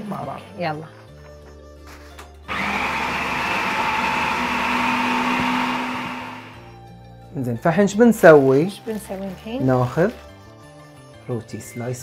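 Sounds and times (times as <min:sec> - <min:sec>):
food processor whirring: 0:02.5 - 0:06.7.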